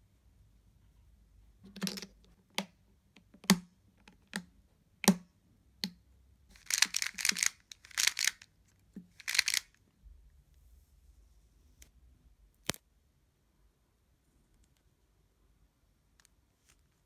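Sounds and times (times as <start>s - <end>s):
plastic puzzle pieces clicking: 1.7s - 2.7s, 6.6s - 8.4s, 9.1s - 9.8s.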